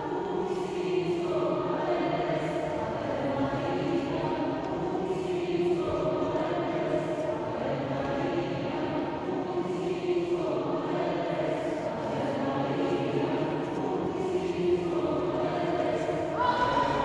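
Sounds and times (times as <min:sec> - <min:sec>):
choir singing sustained chords: 0:00.0 - 0:17.0.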